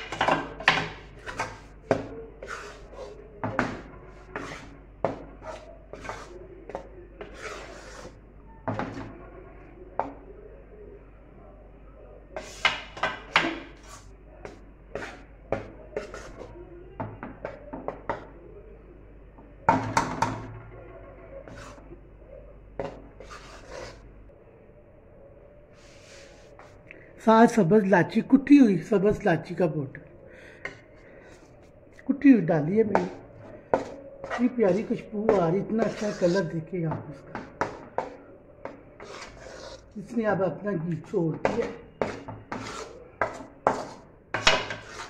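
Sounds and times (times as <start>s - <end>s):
spoon scraping a metal pan: 2.4s - 3.2s, 4.1s - 6.3s, 7.2s - 8.2s, 23.2s - 24.0s, 32.9s - 36.6s, 37.4s - 40.2s, 41.4s - 45.0s.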